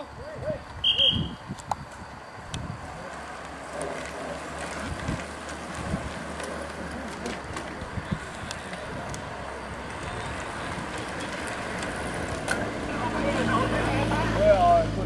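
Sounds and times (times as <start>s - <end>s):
roadside noise: 0.0s - 15.0s
wind on microphone: 0.4s - 3.0s, 4.8s - 6.2s, 7.8s - 9.3s.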